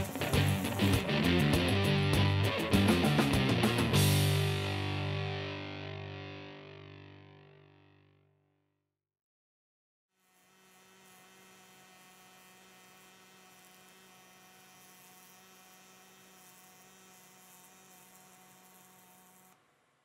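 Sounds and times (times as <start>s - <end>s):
welding arc buzzing: 0.0s - 4.8s, 10.2s - 19.6s.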